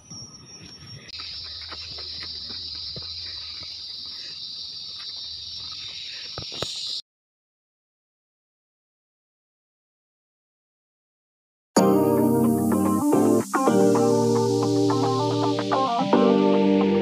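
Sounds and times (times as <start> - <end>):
insects droning: 0.0 - 7.0, 11.8 - 17.0
footsteps on dry leaves: 1.2 - 6.9.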